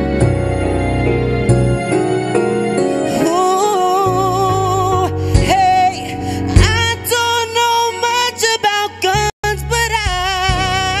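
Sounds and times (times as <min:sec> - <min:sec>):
slow backing track: 0:00.0 - 0:11.0
man singing wordless vocal run: 0:03.1 - 0:11.0.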